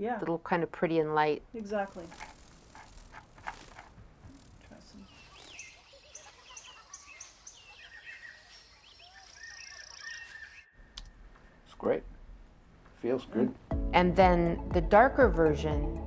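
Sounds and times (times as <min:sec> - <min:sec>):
high insect trill: 0:01.6 - 0:10.1
birds chirping and twittering: 0:01.6 - 0:11.7.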